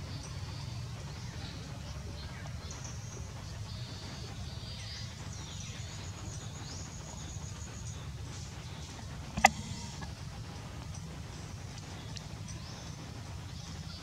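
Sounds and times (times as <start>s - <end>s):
low rumble: 9.0s - 12.4s.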